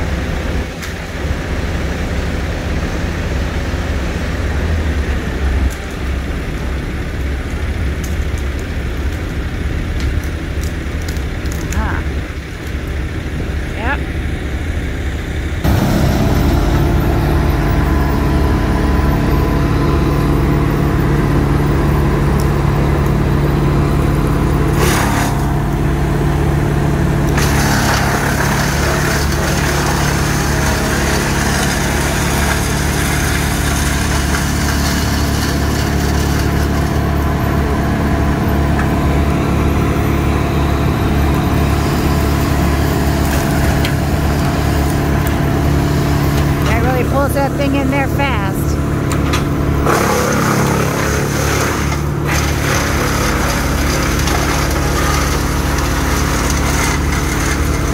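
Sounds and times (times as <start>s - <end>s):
brush chipper engine running: 0.0s - 57.9s
branches grinding through chipper: 15.6s - 57.9s.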